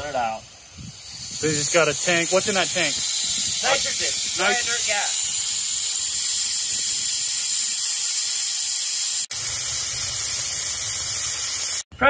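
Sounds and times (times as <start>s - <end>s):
gas hissing through a hose: 0.0s - 11.8s.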